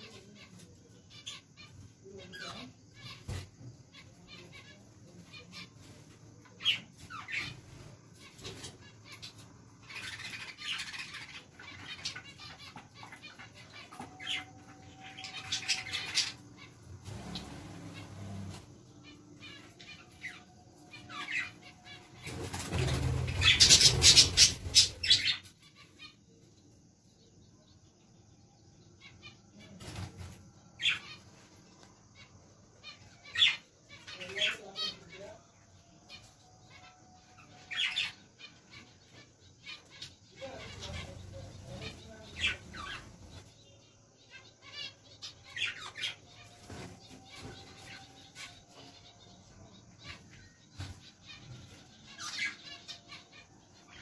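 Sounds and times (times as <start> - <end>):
budgerigars chirping: 6.5 - 26.3, 32.0 - 35.4, 36.0 - 54.0
wings flapping: 17.0 - 18.8, 22.0 - 25.2.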